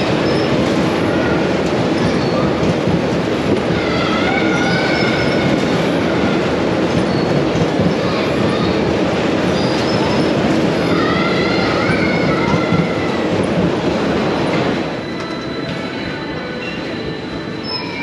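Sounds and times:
ride cars rumbling on track: 0:00.0 - 0:18.0
wavering high squeal: 0:03.8 - 0:06.4, 0:14.8 - 0:18.0.

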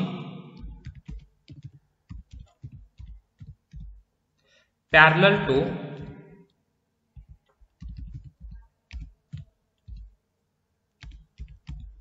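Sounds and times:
keyboard typing clicks: 0:00.0 - 0:04.1, 0:05.9 - 0:06.2, 0:07.2 - 0:10.2, 0:11.0 - 0:12.0.

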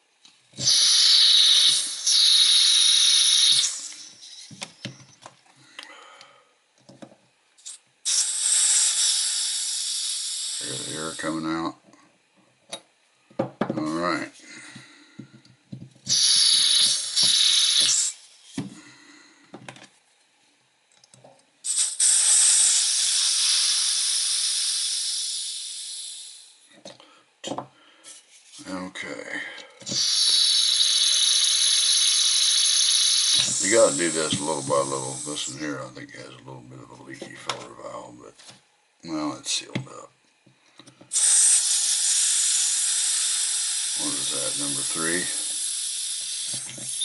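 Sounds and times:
butane gas hissing: 0:00.6 - 0:05.1, 0:07.6 - 0:11.7, 0:16.0 - 0:19.4, 0:21.6 - 0:26.8, 0:28.0 - 0:36.3, 0:41.1 - 0:47.0
air hissing from lighter tank: 0:00.6 - 0:05.2, 0:07.6 - 0:11.5, 0:16.1 - 0:19.2, 0:21.6 - 0:26.7, 0:29.8 - 0:36.0, 0:41.0 - 0:47.0.

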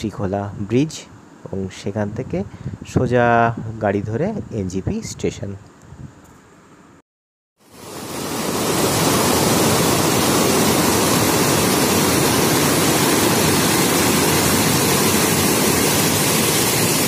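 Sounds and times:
fast-flowing water rushing: 0:07.7 - 0:17.0.

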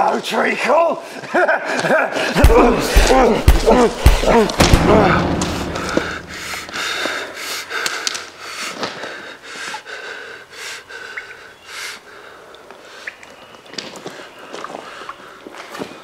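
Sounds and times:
person breathing heavily: 0:02.2 - 0:13.0.

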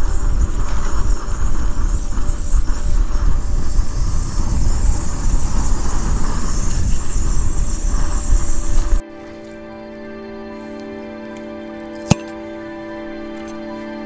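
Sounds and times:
wind buffeting microphone: 0:00.0 - 0:09.1
soft music: 0:09.0 - 0:14.0.

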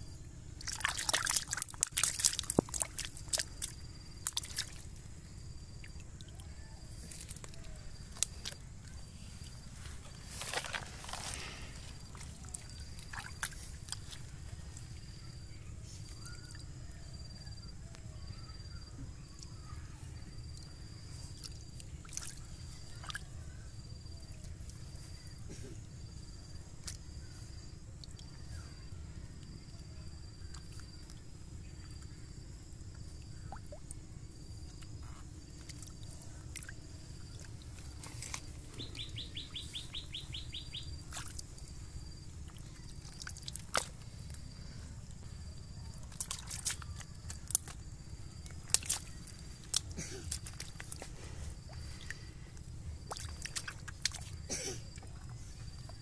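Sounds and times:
hands splashing in muddy water: 0:00.6 - 0:05.0, 0:07.0 - 0:14.7, 0:39.8 - 0:44.6, 0:45.9 - 0:54.5
birds chirping: 0:37.3 - 0:41.8.

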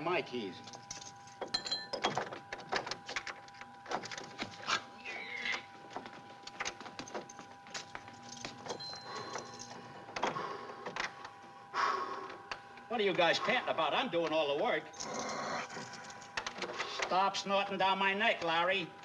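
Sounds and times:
keys jingling in a door lock: 0:00.6 - 0:04.6, 0:06.4 - 0:10.3, 0:14.9 - 0:17.1.

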